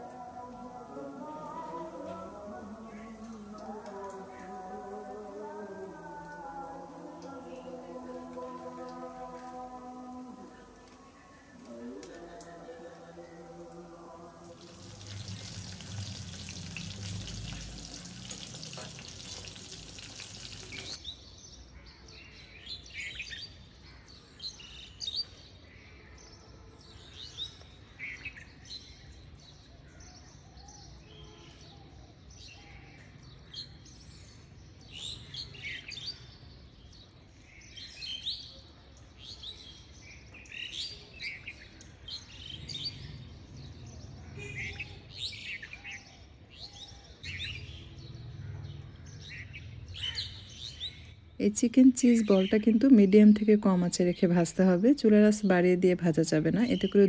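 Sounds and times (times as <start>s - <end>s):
birds chirping: 7.2s - 21.9s, 39.8s - 57.0s
food deep-frying in oil: 14.5s - 21.0s.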